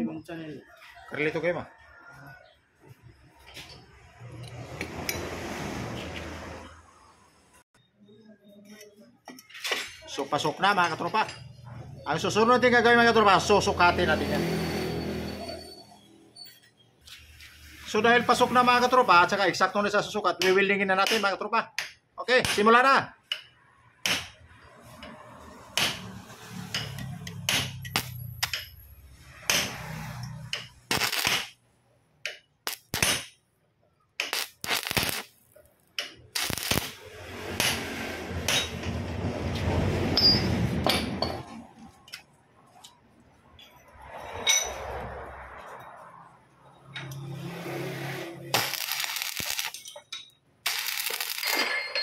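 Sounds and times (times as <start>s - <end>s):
welding arc crackling: 25.8s - 28.6s, 29.3s - 31.6s, 32.6s - 33.3s, 34.2s - 38.7s, 47.5s - 50.0s, 50.6s - 51.7s.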